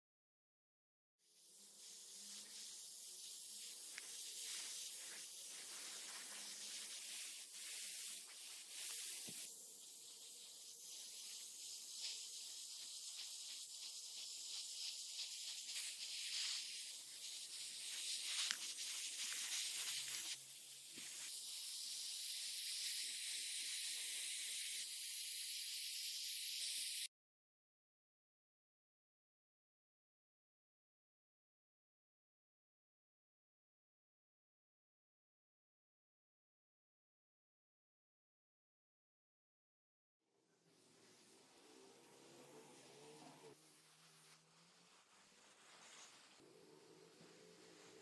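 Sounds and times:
airbrush spraying hiss: 0:01.3 - 0:27.1, 0:40.6 - 0:48.0.

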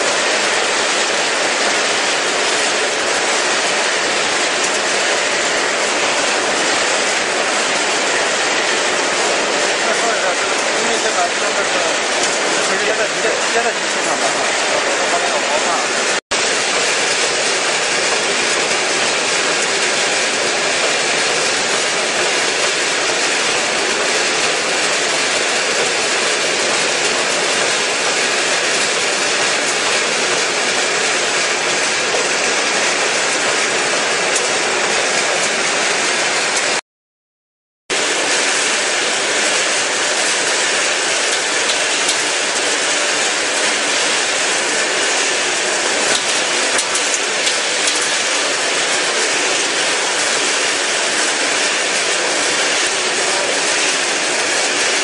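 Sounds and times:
machinery running with rotating drum: 0:00.0 - 0:36.8, 0:37.9 - 0:55.0.

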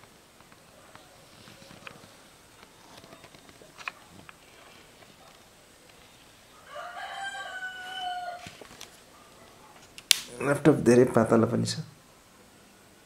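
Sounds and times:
rooster crowing: 0:06.5 - 0:08.7.

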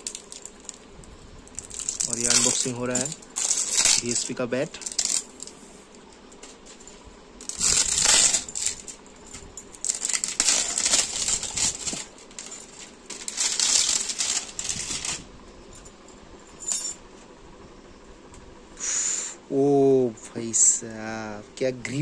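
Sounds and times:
plastic wrapping crinkling: 0:00.0 - 0:00.9, 0:01.5 - 0:05.6, 0:07.4 - 0:09.0, 0:09.7 - 0:15.2.

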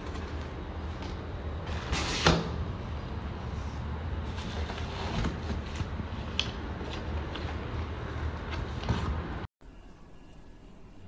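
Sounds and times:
steady low hum: 0:00.0 - 0:11.0
cardboard and plastic rustling: 0:04.2 - 0:09.4.

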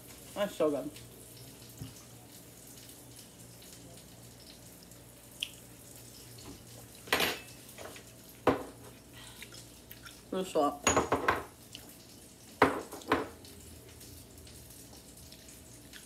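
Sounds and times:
plates and utensils clattering: 0:07.1 - 0:09.0, 0:10.9 - 0:11.5.

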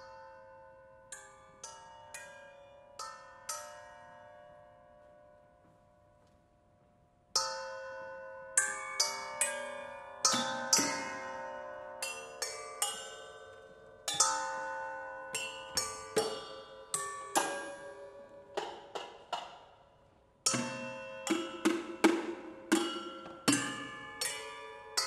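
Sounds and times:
metal pots struck with mallets: 0:10.2 - 0:13.4, 0:14.1 - 0:19.8, 0:20.5 - 0:25.0.

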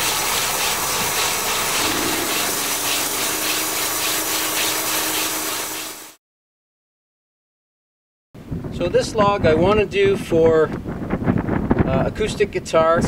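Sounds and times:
steady hum: 0:00.0 - 0:06.2
tool rasping on wood: 0:00.6 - 0:05.0.

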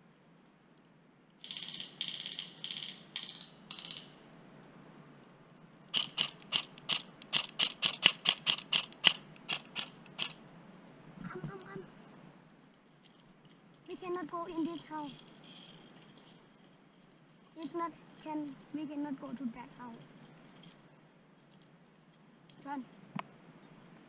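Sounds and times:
airsoft gun rapid-fire bursts: 0:05.9 - 0:10.4.

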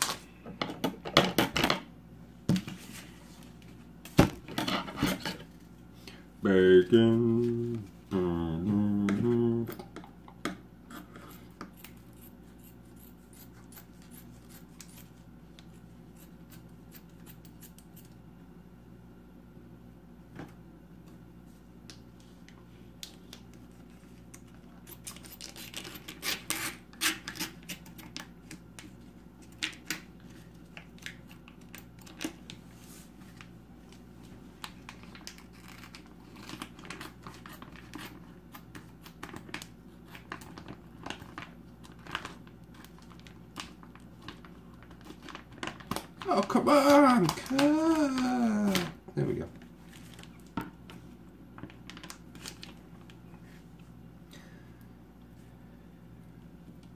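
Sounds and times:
steady low hum: 0:00.0 - 0:56.9.

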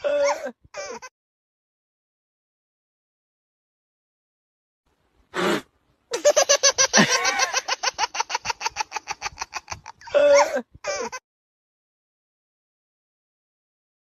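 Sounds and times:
person laughing hard: 0:06.2 - 0:11.2.

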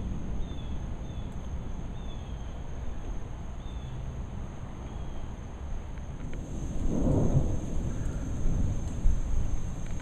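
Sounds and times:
distant thunder rumble: 0:06.2 - 0:10.0.

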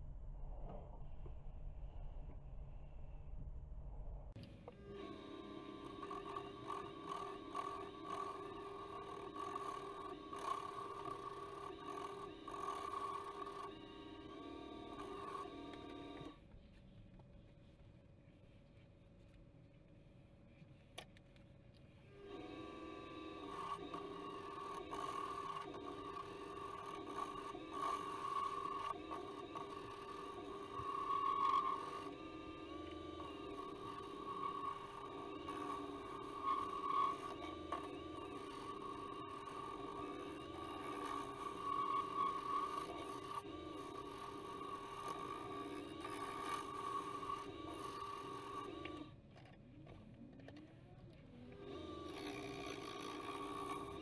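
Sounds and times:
lathe motor whine: 0:04.5 - 0:16.4, 0:22.1 - 0:54.0
turning tool cutting wood: 0:04.8 - 0:16.4, 0:22.1 - 0:49.1, 0:51.5 - 0:54.0.

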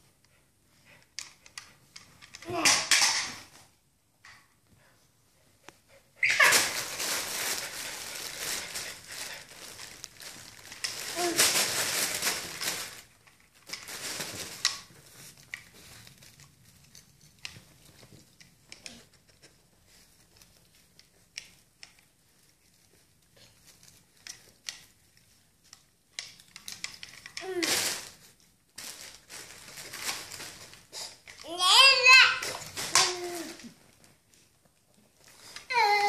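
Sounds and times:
small crackles and clicks: 0:05.6 - 0:31.6
wrapping paper and foil crinkling: 0:06.2 - 0:36.0.

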